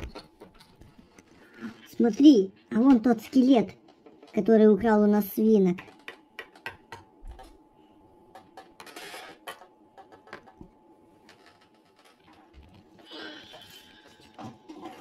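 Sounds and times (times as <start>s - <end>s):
plastic toys clicking on a table: 5.6s - 7.6s, 8.3s - 10.7s.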